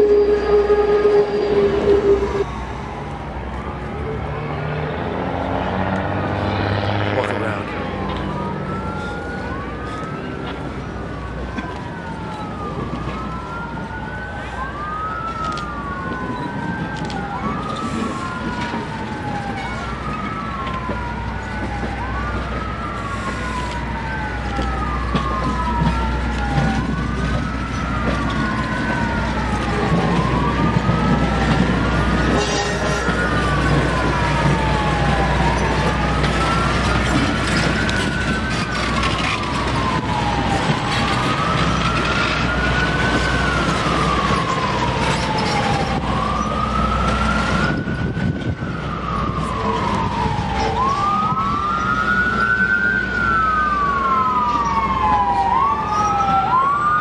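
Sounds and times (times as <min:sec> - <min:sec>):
passenger cars rumbling past: 0:00.0 - 0:11.5
emergency siren wailing: 0:00.0 - 0:57.0.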